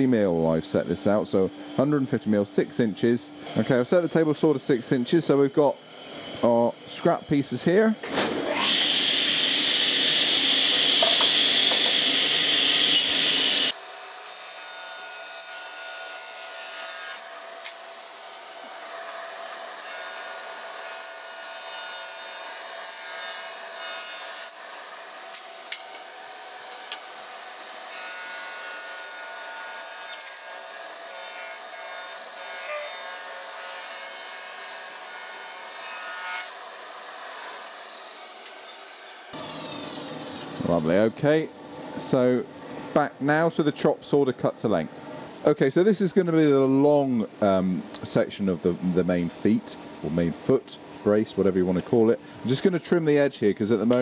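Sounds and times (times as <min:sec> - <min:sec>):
table saw blade whine: 0:00.0 - 0:42.4
saw rasping through wood: 0:08.5 - 0:41.1.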